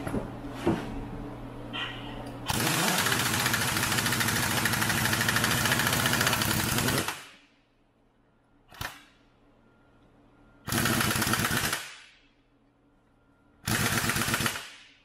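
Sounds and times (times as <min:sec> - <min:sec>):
pneumatic impact wrench hammering: 0:02.5 - 0:07.4, 0:13.6 - 0:15.0.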